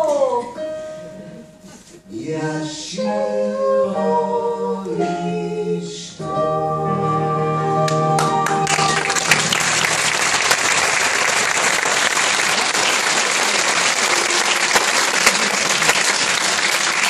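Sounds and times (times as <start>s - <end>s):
audience applauding: 7.9s - 17.0s.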